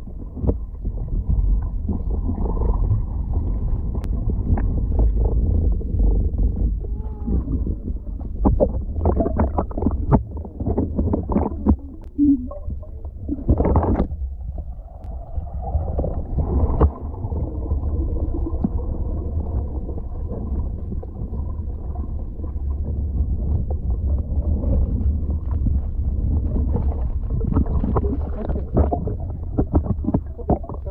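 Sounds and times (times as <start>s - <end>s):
water splashing and bubbles popping: 0.0s - 22.5s, 24.2s - 30.9s
muffled underwater rumble: 0.0s - 30.9s.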